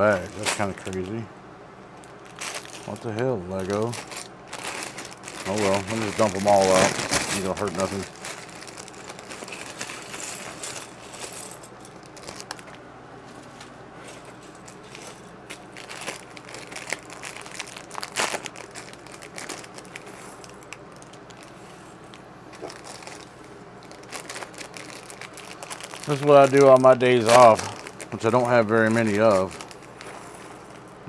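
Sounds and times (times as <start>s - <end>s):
plastic bags crinkling: 0.0s - 1.2s, 1.9s - 12.8s, 14.0s - 31.0s.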